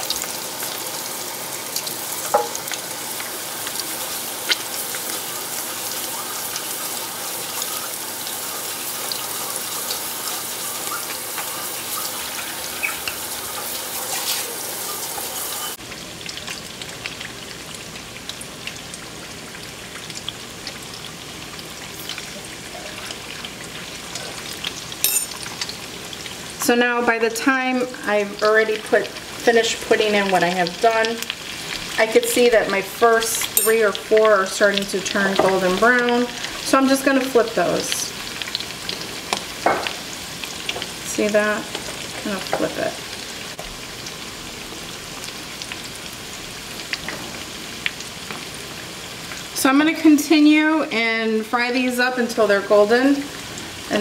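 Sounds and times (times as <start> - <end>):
food sizzling in hot oil: 0.0 - 54.0.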